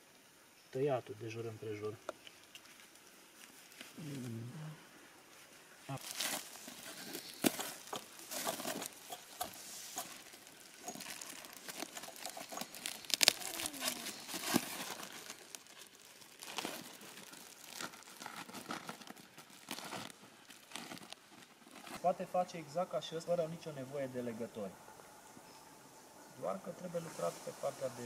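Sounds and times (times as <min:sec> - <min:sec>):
plastic sheeting crinkling: 0:05.3 - 0:22.5.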